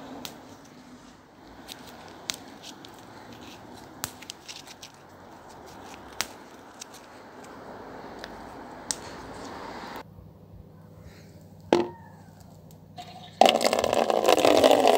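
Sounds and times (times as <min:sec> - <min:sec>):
leaves and twigs rustling: 0:00.3 - 0:10.0
leaves snapping off: 0:03.9 - 0:07.6.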